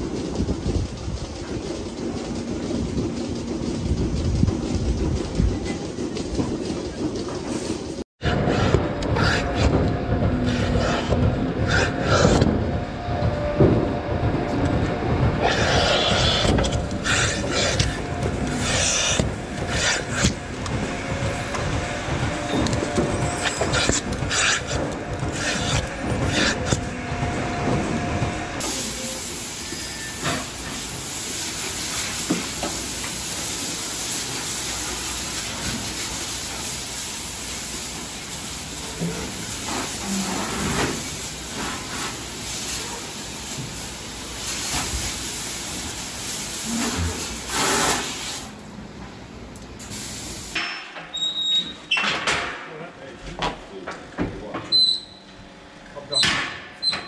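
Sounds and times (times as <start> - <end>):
hose spraying water: 15.5 - 20.4, 23.4 - 26.8, 28.6 - 48.6, 49.8 - 50.6.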